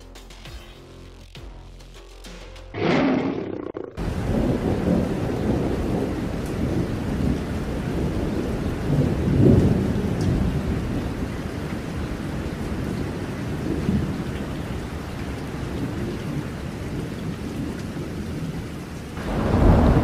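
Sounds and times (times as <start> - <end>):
thunder crash: 2.8 - 7.4, 19.2 - 20.0
rolling thunder: 2.8 - 14.5, 19.2 - 20.0
heavy rain: 4.0 - 20.0.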